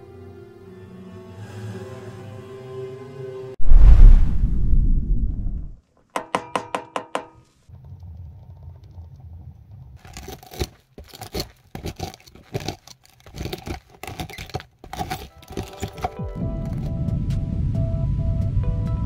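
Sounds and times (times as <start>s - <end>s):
low rumble: 3.6s - 5.8s, 16.4s - 19.0s
knife scraping dry fungus: 10.0s - 16.9s.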